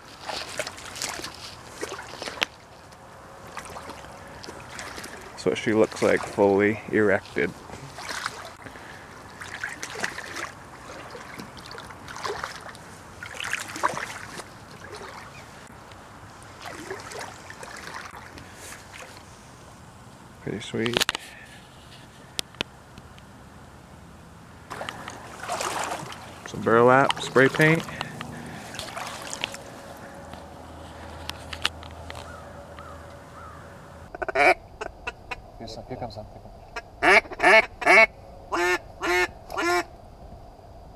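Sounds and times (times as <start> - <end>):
footsteps squelching through water: 0.0 - 19.6, 24.7 - 33.6
low steady hum: 0.0 - 40.9
duck call quacks: 34.1 - 35.4, 36.8 - 39.9.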